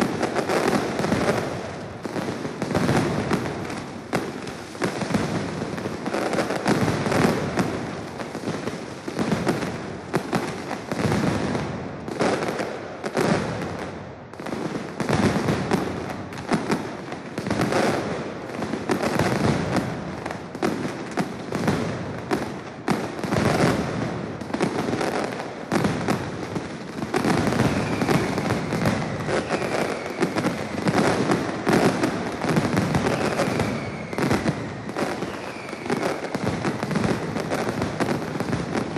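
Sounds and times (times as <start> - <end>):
firecrackers rapid bangs: 0.0 - 38.9.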